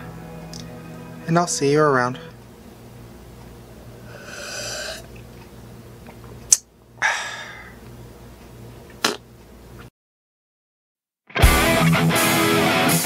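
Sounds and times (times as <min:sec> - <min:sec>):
low steady hum: 0:00.0 - 0:09.8
short breathy exhale: 0:04.1 - 0:05.0, 0:07.0 - 0:07.8
person swallowing: 0:04.1 - 0:05.2, 0:09.0 - 0:09.2.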